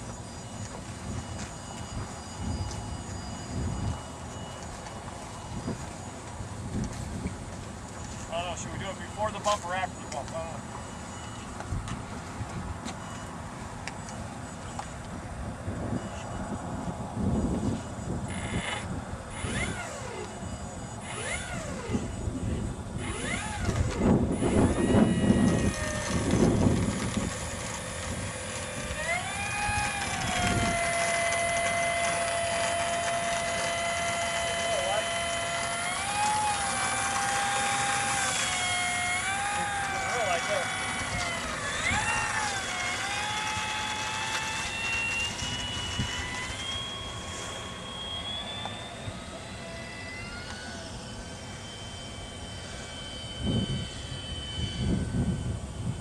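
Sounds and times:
electric motor and propeller whine: 0.0 - 56.0
wind buffeting microphone: 21.1 - 34.5, 53.4 - 56.0.

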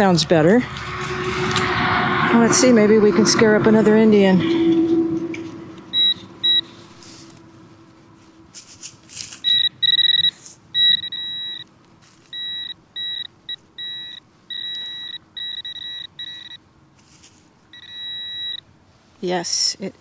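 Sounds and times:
metal detector pinpointer beeping: 5.9 - 6.8, 9.3 - 16.6, 17.7 - 18.6
soil scuffing: 8.2 - 9.4, 17.0 - 17.5.

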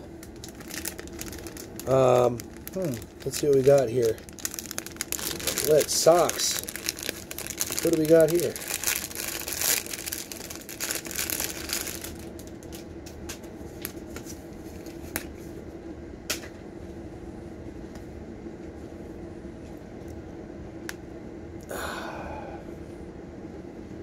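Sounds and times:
plastic packaging crinkling: 0.0 - 12.9
steady hum: 0.0 - 24.0.

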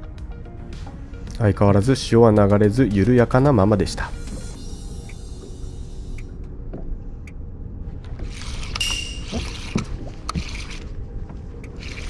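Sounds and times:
boat engine rumble: 3.4 - 12.0
water sloshing against hull: 4.1 - 12.0.

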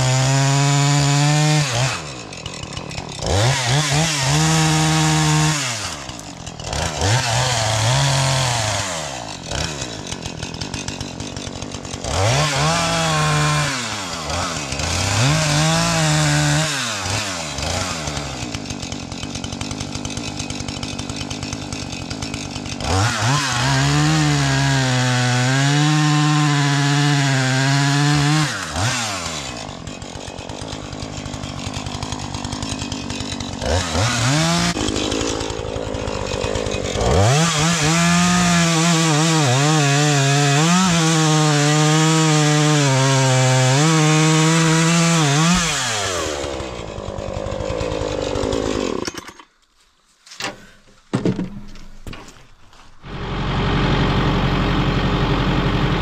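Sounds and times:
chainsaw cutting wood: 0.0 - 49.8, 50.4 - 56.0
vehicle engine idling: 53.1 - 56.0.

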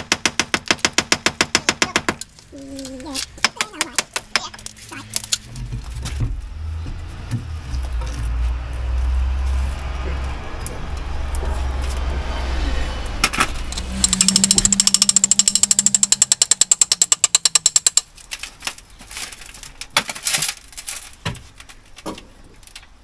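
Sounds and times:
steady low hum: 5.6 - 17.8
hammer-action power tool striking: 13.8 - 18.1
scattered knocks and taps: 14.0 - 18.1.

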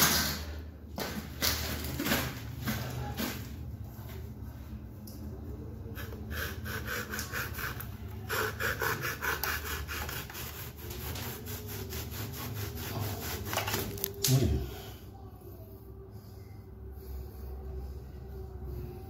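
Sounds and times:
hand saw cutting wood: 6.0 - 13.9.

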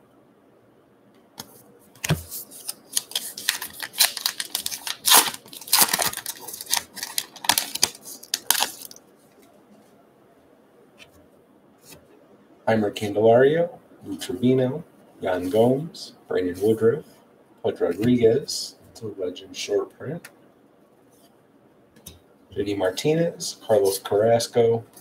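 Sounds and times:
wrapper being torn open: 2.6 - 9.0.

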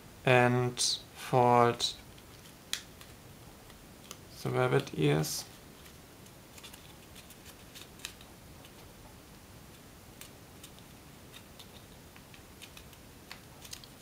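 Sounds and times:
paper crinkling and creasing: 4.8 - 8.8, 12.6 - 14.0.

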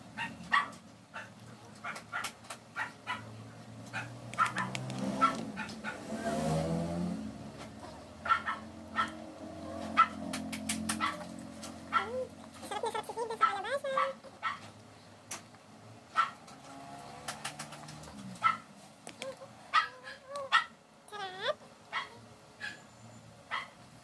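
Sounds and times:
baby whining: 21.1 - 21.6.

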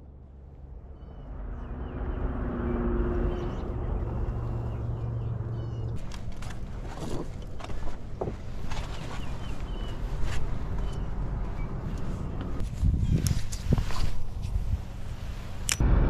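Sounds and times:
road traffic hum: 0.0 - 16.0
small birds chirping: 3.1 - 6.2, 8.5 - 13.7.

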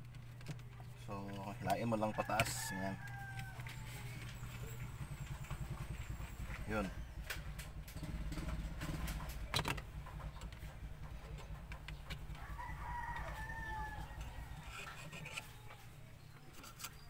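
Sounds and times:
low steady rumble: 0.0 - 17.0
rooster crowing: 1.7 - 4.5, 12.3 - 16.0.

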